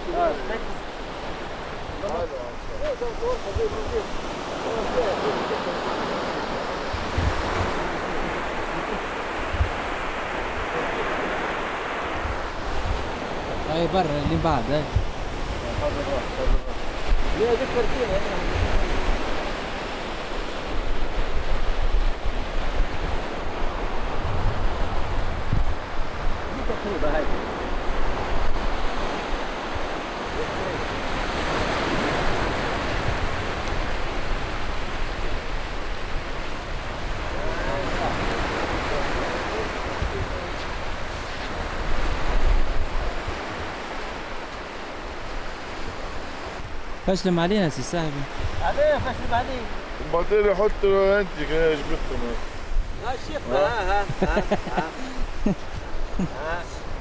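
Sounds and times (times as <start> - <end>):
wind buffeting microphone: 0.0 - 47.1, 48.0 - 57.0
surf washing onto beach: 0.0 - 57.0.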